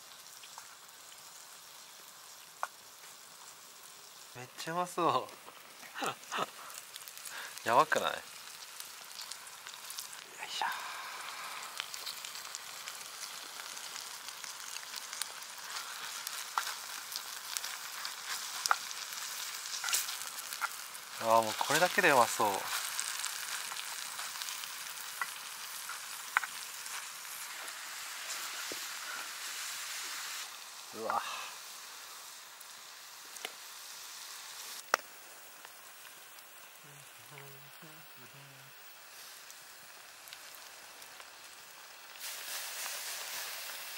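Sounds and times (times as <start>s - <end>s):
charcoal fire pops and crackles: 0.0s - 31.6s, 32.6s - 37.6s, 38.8s - 43.9s
broth simmering and sizzling: 0.0s - 43.9s
man humming: 36.8s - 38.8s.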